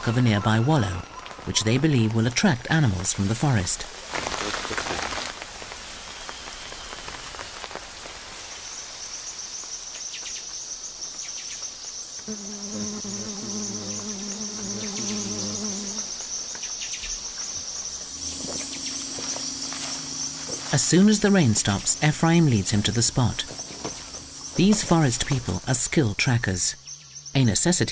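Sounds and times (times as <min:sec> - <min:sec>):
insects trilling chorus: 0:08.4 - 0:27.9.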